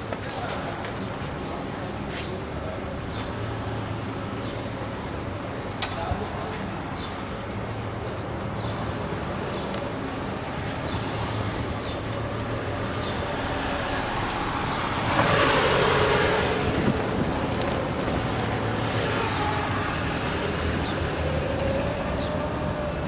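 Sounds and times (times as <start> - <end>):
street traffic with car engines: 0.0 - 23.0
car passing close: 13.2 - 22.0.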